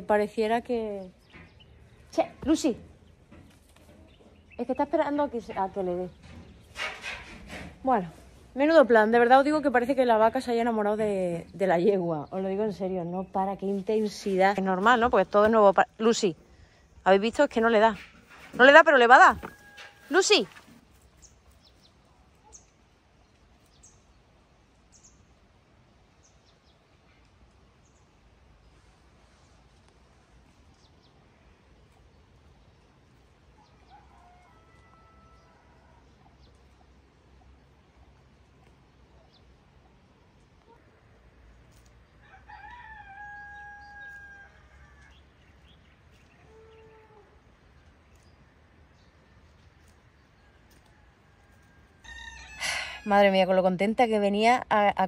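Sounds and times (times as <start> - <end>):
rooster crowing: 33.6 - 36.0, 42.2 - 45.2, 50.5 - 53.1.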